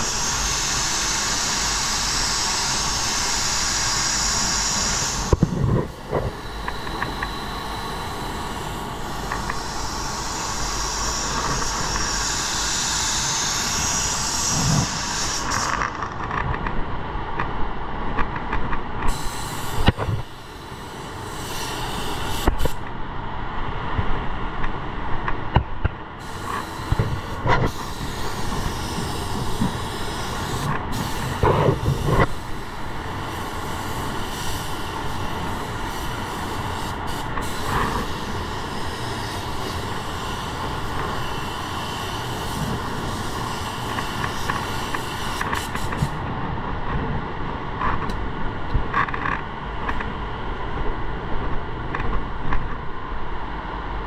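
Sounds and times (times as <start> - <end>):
spray gun hissing: 0.0 - 15.8, 19.1 - 22.8, 26.2 - 46.2.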